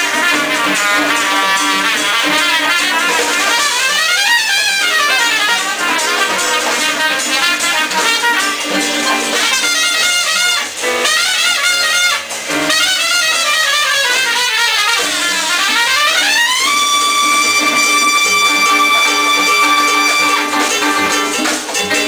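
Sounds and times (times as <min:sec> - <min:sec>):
trumpet soloing: 0:00.0 - 0:21.6
latin jazz band: 0:00.0 - 0:22.0.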